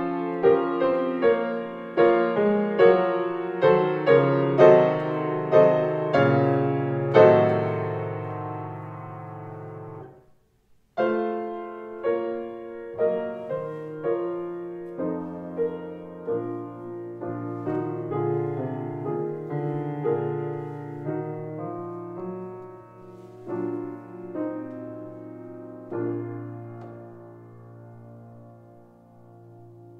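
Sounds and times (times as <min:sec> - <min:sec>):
gentle piano music: 0:00.0 - 0:10.3, 0:11.0 - 0:29.9.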